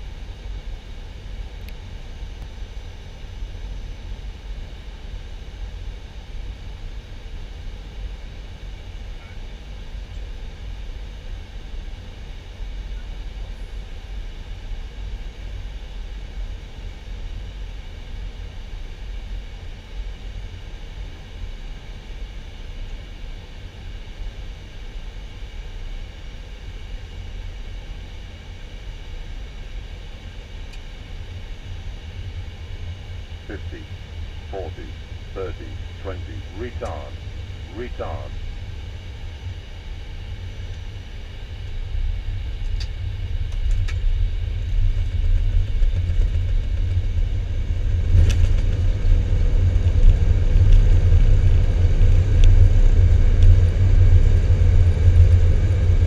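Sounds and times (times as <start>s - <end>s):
deep fluttering low rumble: 33.3s - 38.5s, 41.9s - 56.0s
faint steady high tones: 33.4s - 38.4s.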